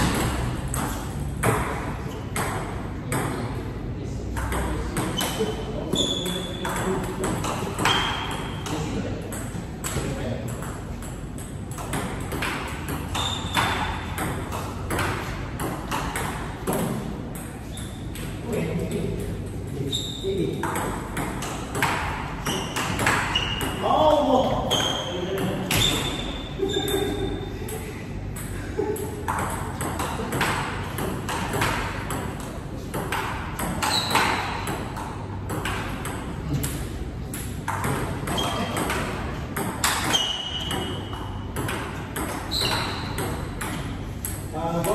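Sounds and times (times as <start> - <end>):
table tennis ball hits: 0.0 - 3.5, 4.3 - 19.4, 20.6 - 27.2, 28.3 - 44.9
high squeak: 5.2 - 6.6, 24.6 - 27.0, 33.8 - 34.6, 40.0 - 41.0, 42.5 - 43.2.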